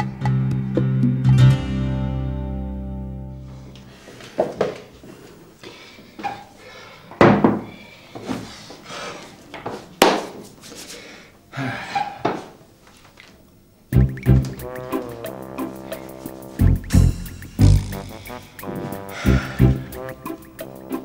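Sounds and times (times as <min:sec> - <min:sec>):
music: 0:00.0 - 0:03.8, 0:13.9 - 0:21.0.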